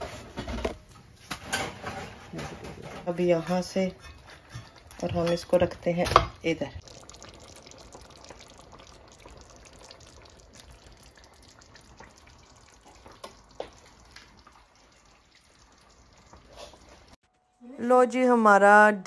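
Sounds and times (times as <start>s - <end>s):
low crackle: 6.8s - 17.2s.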